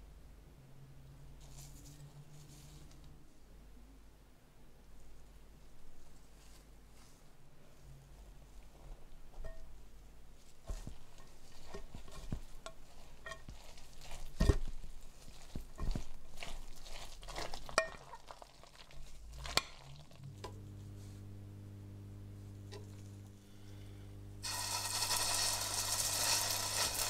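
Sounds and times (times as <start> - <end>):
spoon stirring in glass bowl: 10.6 - 20.6, 22.7 - 23.1
steady low hum: 20.2 - 25.1.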